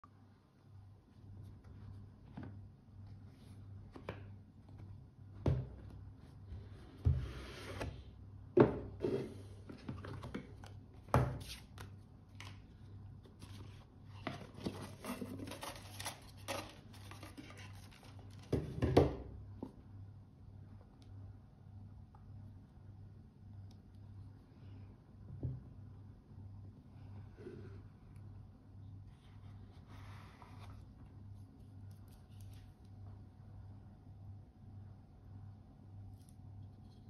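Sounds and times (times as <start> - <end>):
paper rustling and scraping: 13.3 - 18.5.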